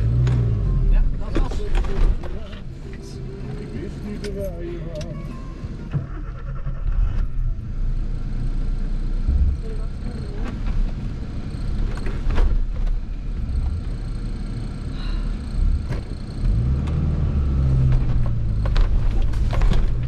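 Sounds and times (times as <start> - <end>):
car engine running from inside: 0.0 - 20.0
knocks and rattles: 17.8 - 20.0.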